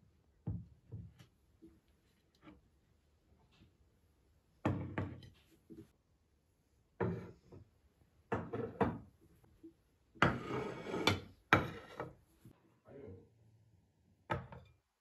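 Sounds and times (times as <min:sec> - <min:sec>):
ceramic plates clunking on table: 0:10.2 - 0:12.2.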